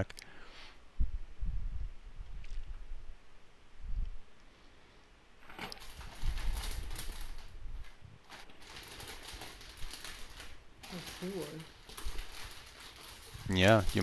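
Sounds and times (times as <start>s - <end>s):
plastic bag crinkling: 5.4s - 14.0s.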